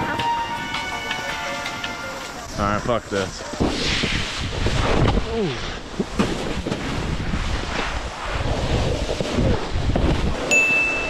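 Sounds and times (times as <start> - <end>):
snowboard sliding over snow: 0.0 - 11.0
wind buffeting microphone: 2.4 - 10.6.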